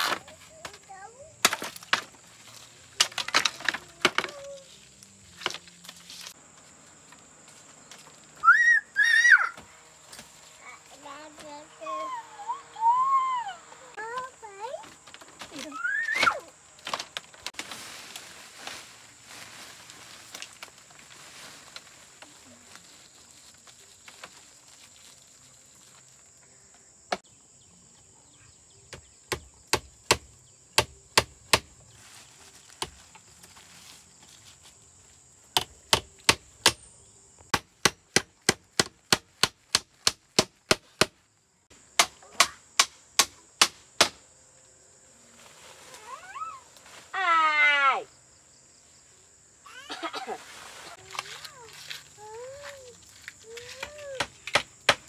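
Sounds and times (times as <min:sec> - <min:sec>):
high insect drone: 0:00.0 - 0:17.5, 0:18.8 - 0:37.6, 0:41.0 - 0:55.0
chopping on wood: 0:28.9 - 0:31.7, 0:35.6 - 0:36.8, 0:37.5 - 0:41.2, 0:42.0 - 0:44.2, 0:53.6 - 0:55.0.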